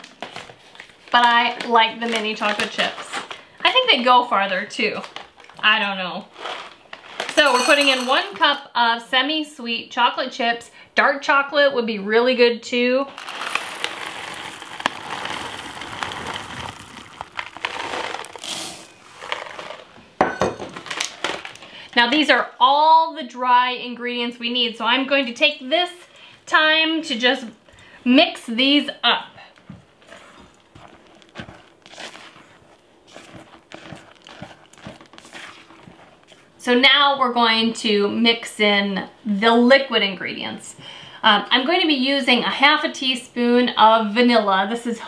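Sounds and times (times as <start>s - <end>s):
plastic bag crinkling: 0.1s - 3.5s, 4.9s - 8.4s, 13.1s - 20.0s, 20.7s - 21.8s, 30.0s - 36.5s
chips pouring into bowl: 6.3s - 8.5s, 13.1s - 19.9s
chocolate chips rattling into metal cup: 6.3s - 8.6s, 13.1s - 19.8s
spatula scraping: 14.8s - 20.0s, 30.0s - 36.5s.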